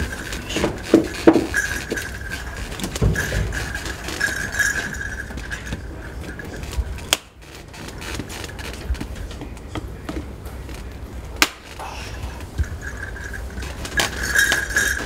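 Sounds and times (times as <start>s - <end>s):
tools clinking on metal: 0.0s - 7.3s, 11.5s - 15.0s.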